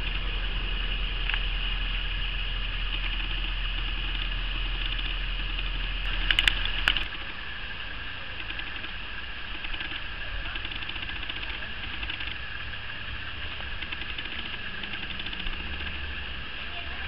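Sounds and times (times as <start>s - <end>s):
low hum: 0.0s - 17.0s
sharp clicks: 2.8s - 7.2s, 8.4s - 12.4s, 13.4s - 16.0s.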